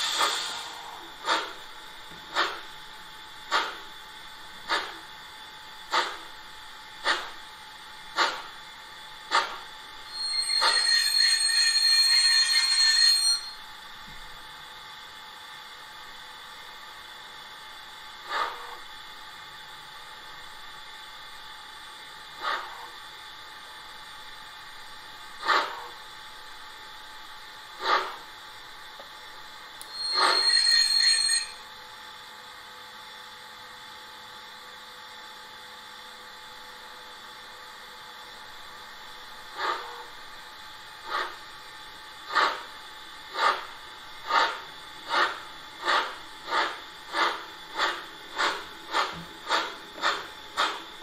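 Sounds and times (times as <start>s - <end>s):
steam locomotive puffs: 0.0s - 2.7s, 3.5s - 3.9s, 4.6s - 5.1s, 5.8s - 6.3s, 7.0s - 7.4s, 8.1s - 8.6s, 9.3s - 13.4s, 18.2s - 18.8s, 22.4s - 22.9s, 25.4s - 26.0s, 27.8s - 28.3s, 29.8s - 31.6s, 39.5s - 40.1s, 41.0s - 41.5s, 42.2s - 51.0s
locomotive whistle: 10.1s - 13.6s, 29.8s - 31.7s.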